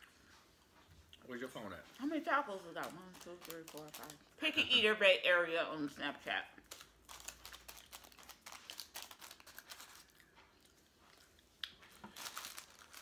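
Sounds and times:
paper wrappers crinkling: 2.6s - 4.3s, 6.6s - 10.4s, 11.8s - 13.0s.

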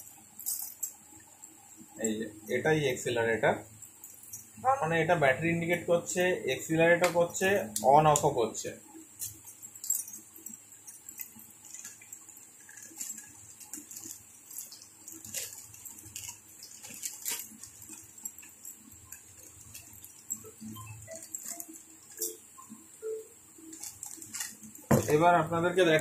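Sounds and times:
plastic bag crinkling: 10.8s - 22.4s, 23.6s - 26.0s.

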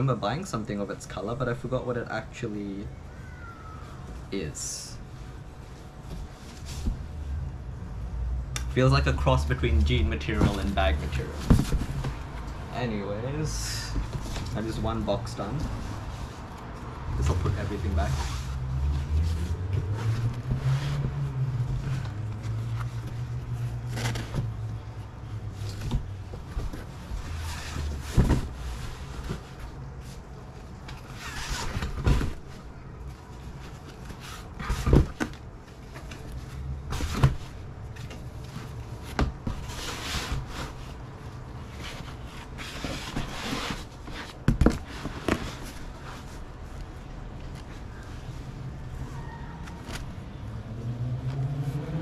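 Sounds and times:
low steady hum: 0.0s - 52.0s
fabric rustling: 4.9s - 7.8s, 9.4s - 50.2s
sharp knocks and thumps: 10.3s - 12.4s.

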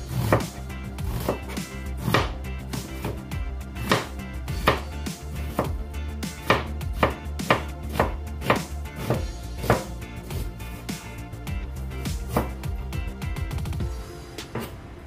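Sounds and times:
knife slicing onion on board: 0.0s - 11.0s, 12.2s - 12.7s.

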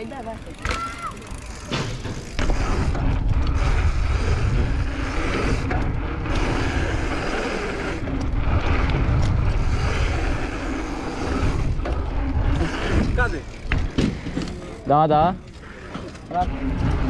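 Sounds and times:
wind rumble on microphone: 2.4s - 14.1s.

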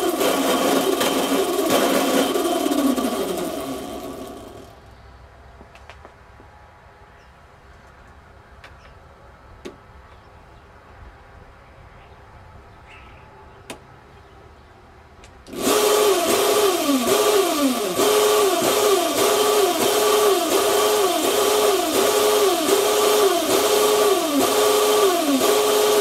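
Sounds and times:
drive motor running with pulsing pitch: 0.0s - 4.8s, 15.5s - 26.0s.

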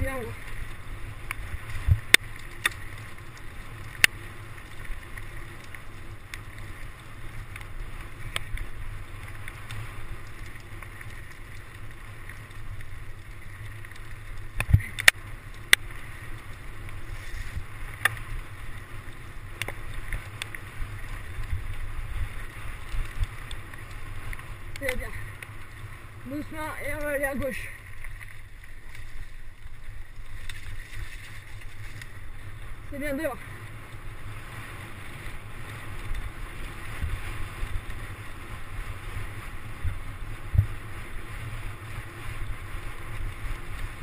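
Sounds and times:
bike clicks and knocks: 1.2s - 21.9s.

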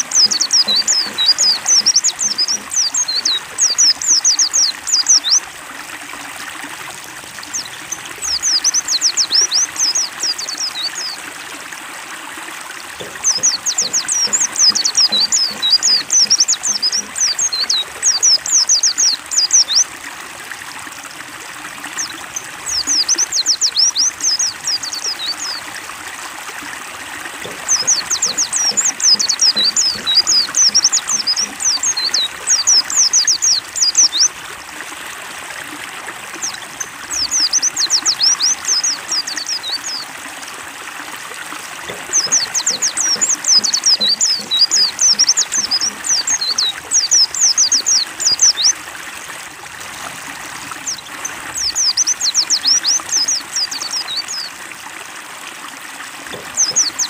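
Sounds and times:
bird twittering: 0.0s - 5.4s, 13.0s - 19.9s, 22.7s - 25.6s, 27.4s - 34.3s, 41.9s - 48.8s, 56.3s - 57.0s
trickling stream: 0.0s - 57.0s.

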